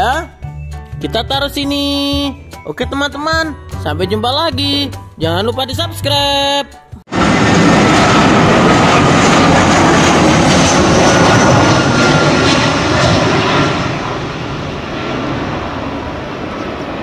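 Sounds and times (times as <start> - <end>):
jet engine roar: 7.1 - 17.0.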